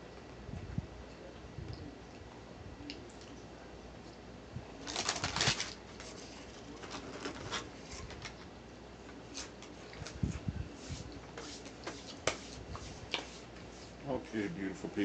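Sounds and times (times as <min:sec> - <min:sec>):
paper wrapper crinkling: 0:04.8 - 0:08.4.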